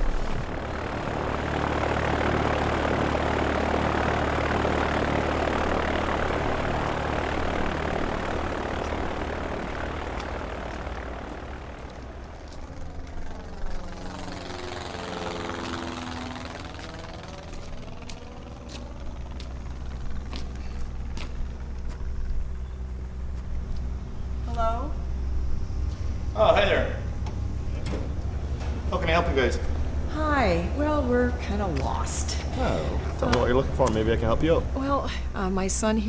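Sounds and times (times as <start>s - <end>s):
aircraft flying past overhead: 0.0s - 36.0s
low engine hum: 0.0s - 36.0s.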